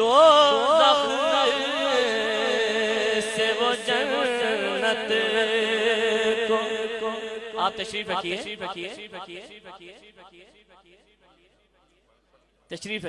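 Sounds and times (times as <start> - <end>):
man singing: 0.0 - 9.6.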